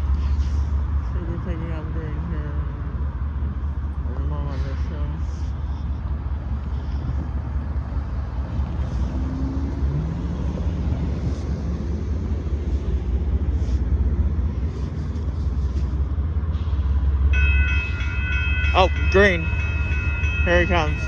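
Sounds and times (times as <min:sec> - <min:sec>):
steady low rumble: 0:00.0 - 0:17.4
crossing warning bell ringing: 0:17.0 - 0:21.0.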